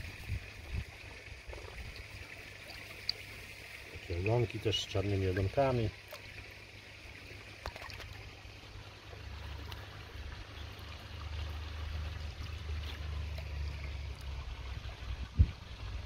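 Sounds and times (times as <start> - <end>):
water splashing and trickling: 0.0 - 16.0.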